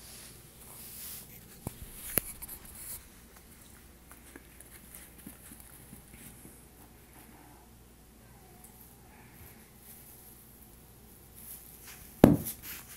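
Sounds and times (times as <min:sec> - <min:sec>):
rustling and scratching: 0:00.0 - 0:07.7, 0:11.4 - 0:12.9.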